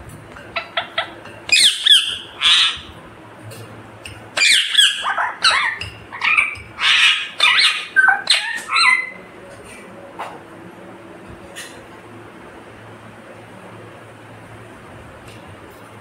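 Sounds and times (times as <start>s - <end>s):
parakeet squawking and chattering: 0.6s - 3.0s, 4.3s - 9.2s.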